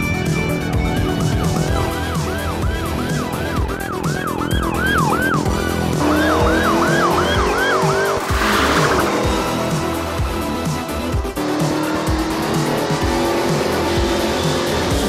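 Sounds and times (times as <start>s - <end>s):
synthwave music with steady beat: 0.0s - 15.0s
police siren yelping: 1.6s - 9.6s.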